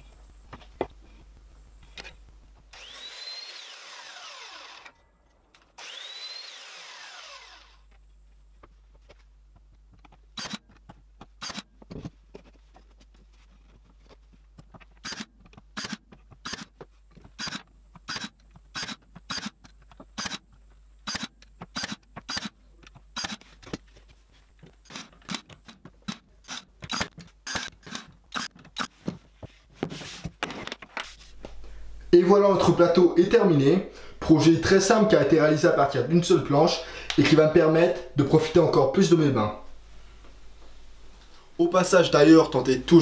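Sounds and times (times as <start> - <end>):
nail gun firing: 10.4 - 10.6, 15.0 - 16.7, 20.2 - 20.4, 21.0 - 22.6, 24.9 - 28.9.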